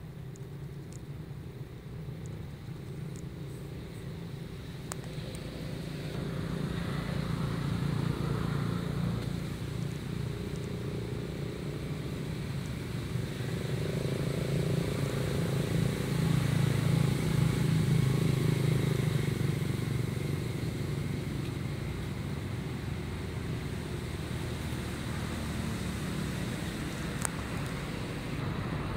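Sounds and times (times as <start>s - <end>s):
low traffic engine hum: 0.0s - 28.9s.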